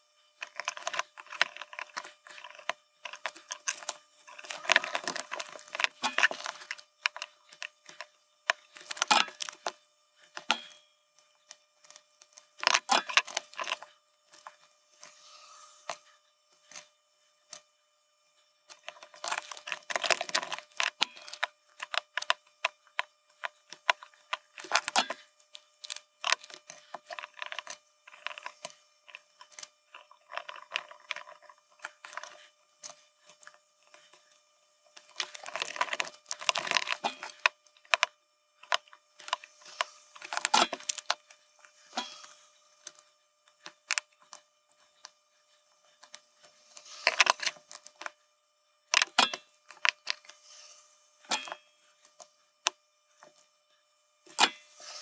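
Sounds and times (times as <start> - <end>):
plastic and metal clicks and rattles: 0.4 - 10.8, 11.8 - 14.6, 18.7 - 34.1, 35.0 - 41.3.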